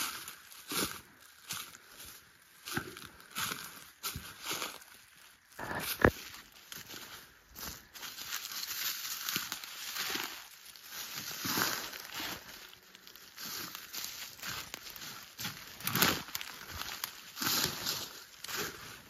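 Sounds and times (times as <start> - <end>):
footsteps crunching dry leaves: 0.0 - 19.0.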